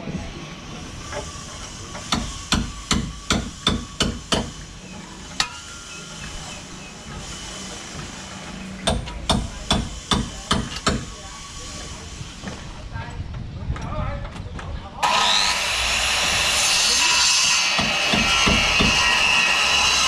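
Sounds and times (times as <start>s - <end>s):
hammer blows: 15.6s - 19.8s.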